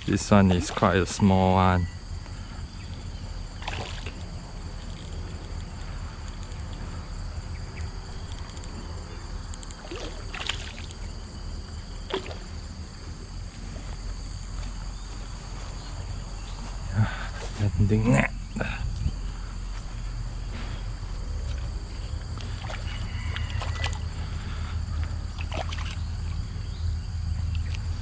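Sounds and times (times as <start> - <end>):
fish splashing at water surface: 3.6 - 4.2, 9.8 - 11.0, 25.4 - 26.4.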